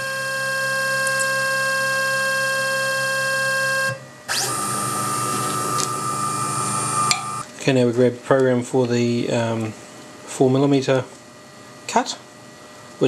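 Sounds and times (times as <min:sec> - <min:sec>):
motor whining: 0:00.0 - 0:07.4.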